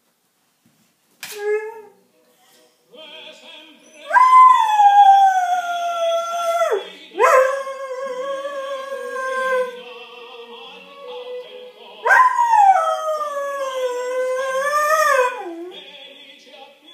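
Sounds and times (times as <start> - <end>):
faint opera music: 1.3 - 16.9
dog howling: 3.9 - 9.8, 11.0 - 15.7.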